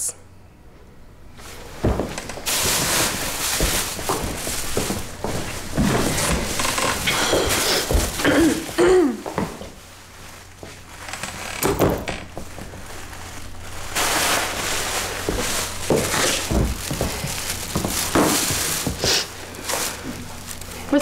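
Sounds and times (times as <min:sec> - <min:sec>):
low steady hum: 0:00.0 - 0:21.0
bag rustling and crinkling: 0:01.4 - 0:21.0
footsteps walking: 0:01.4 - 0:21.0
chair thunk: 0:01.8 - 0:02.9, 0:11.2 - 0:12.4.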